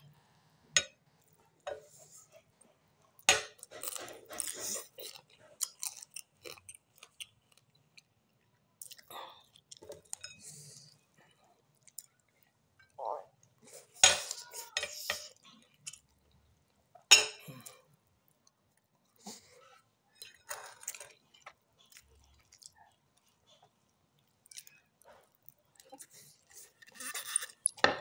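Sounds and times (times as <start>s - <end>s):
person chewing: 3.2s - 12.6s, 17.4s - 27.8s.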